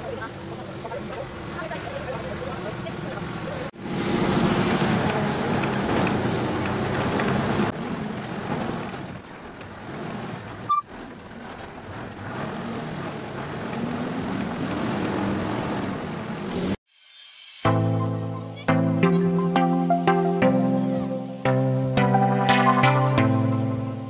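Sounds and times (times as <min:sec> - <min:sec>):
road and wind noise: 0:00.0 - 0:16.8.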